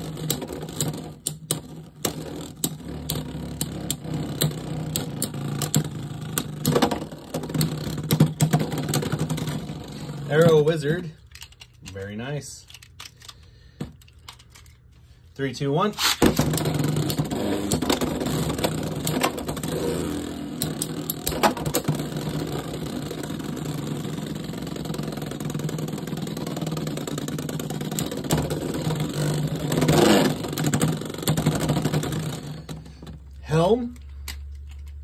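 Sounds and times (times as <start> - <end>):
top rattling against plastic edge: 0.0 - 10.6, 16.2 - 33.2
tops clacking together: 0.0 - 10.6, 16.0 - 33.2
spinning tops whirring: 0.0 - 11.1, 16.0 - 33.1.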